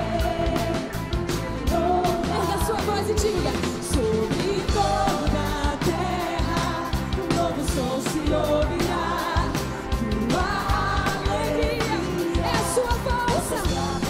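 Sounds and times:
band playing: 0.0 - 14.0
group singing worship music: 0.0 - 14.0.

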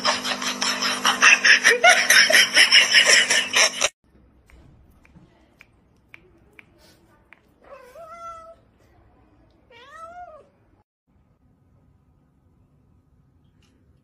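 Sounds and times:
cat meowing: 9.7 - 10.5.

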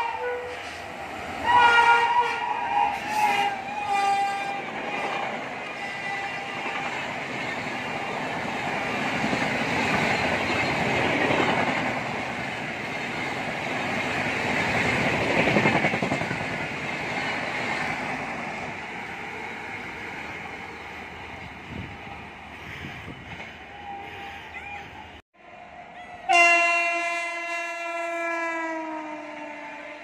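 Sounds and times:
train horn: 0.0 - 0.8, 1.4 - 6.8, 25.9 - 30.0
passenger train passing at speed: 0.0 - 30.0.

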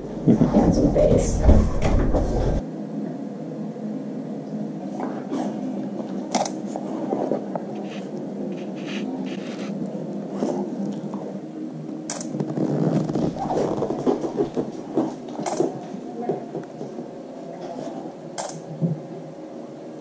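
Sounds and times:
low room hum: 0.0 - 20.0
dog rustling: 12.6 - 16.0.

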